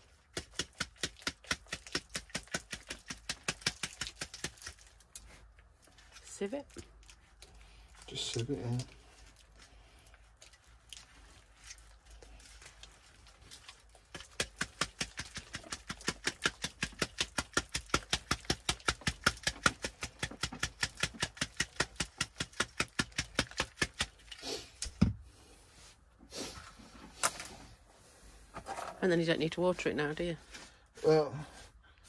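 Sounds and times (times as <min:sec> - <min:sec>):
garden sieve shaking: 0:00.0 - 0:05.4, 0:10.8 - 0:24.4.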